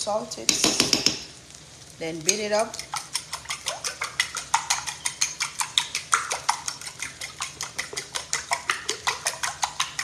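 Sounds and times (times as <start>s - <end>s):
fork beating eggs in bowl: 2.3s - 10.0s.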